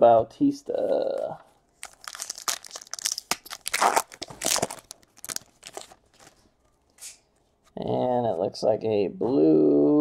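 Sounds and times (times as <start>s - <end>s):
wrapper tearing and crinkling: 1.8s - 6.4s.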